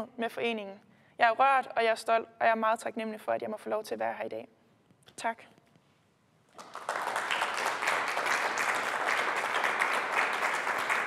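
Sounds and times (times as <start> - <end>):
audience applauding: 6.6 - 11.0.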